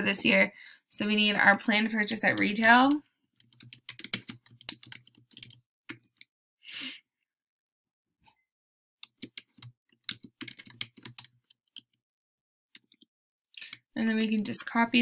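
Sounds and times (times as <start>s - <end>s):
computer keyboard typing: 2.2s - 6.2s, 9.0s - 12.0s, 12.8s - 14.6s
person exhaling: 6.7s - 7.0s.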